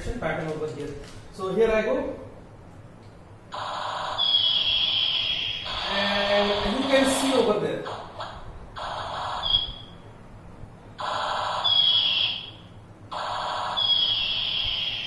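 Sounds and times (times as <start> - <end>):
toy laser gun sound effect: 3.5 - 9.9, 11.0 - 15.0.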